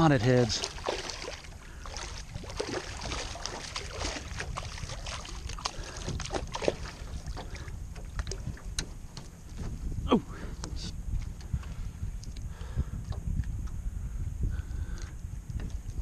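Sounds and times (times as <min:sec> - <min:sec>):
shark splashing in shallow water: 0:00.0 - 0:08.6
wind rumble on microphone: 0:00.0 - 0:16.0.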